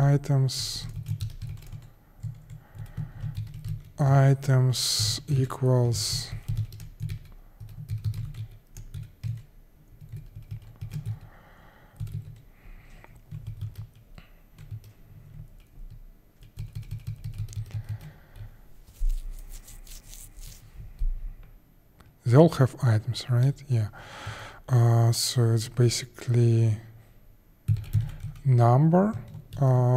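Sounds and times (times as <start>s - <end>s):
computer keyboard typing: 0.6s - 4.2s, 4.8s - 11.3s, 12.0s - 12.5s, 13.2s - 20.6s, 27.7s - 29.7s.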